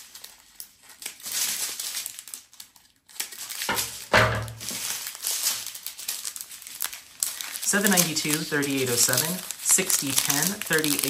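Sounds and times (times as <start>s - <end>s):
plastic bags crinkling: 0.0s - 11.0s
thump: 3.7s - 4.8s.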